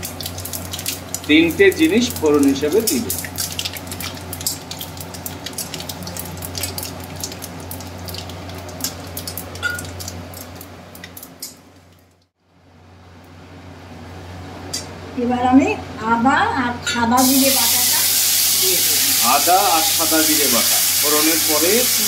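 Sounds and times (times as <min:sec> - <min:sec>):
spices crackling in hot oil: 0:00.0 - 0:12.3, 0:17.2 - 0:22.0.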